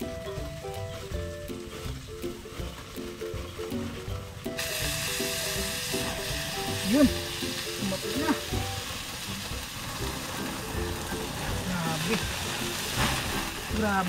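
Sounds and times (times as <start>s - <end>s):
fat sizzling on charcoal: 0.0s - 14.0s.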